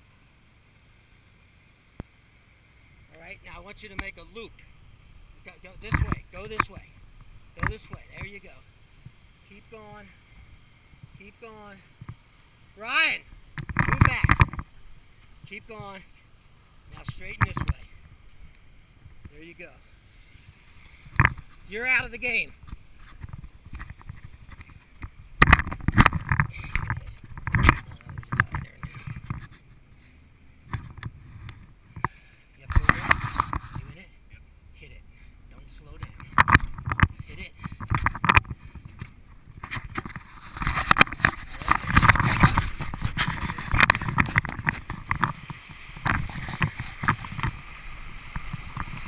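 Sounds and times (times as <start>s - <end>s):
vehicle engine and tyre rumble: 0.0s - 49.0s
knocks and rustling: 36.0s - 47.7s.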